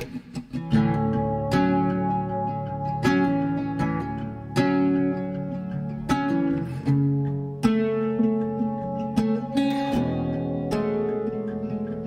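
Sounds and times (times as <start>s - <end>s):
plucked string music: 0.0s - 12.0s.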